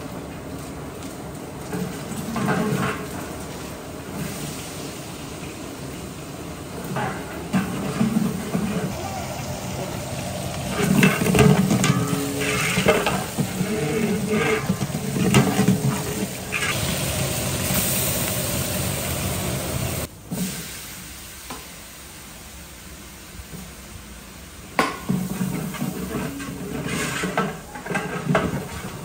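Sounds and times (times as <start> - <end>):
onions sizzling in hot oil: 0.0 - 29.0
ladle stirring in a pot: 10.2 - 16.9, 25.1 - 29.0.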